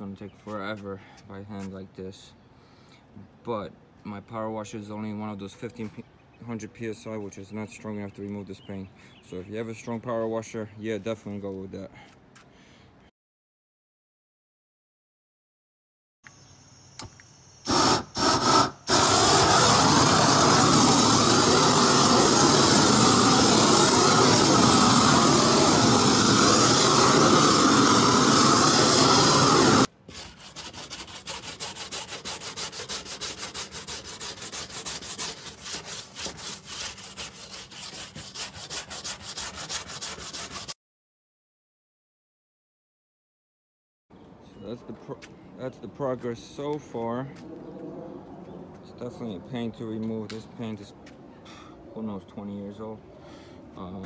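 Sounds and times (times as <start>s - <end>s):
propane torch burning: 17.0s - 29.9s
wire brush scrubbing wood: 17.7s - 40.8s.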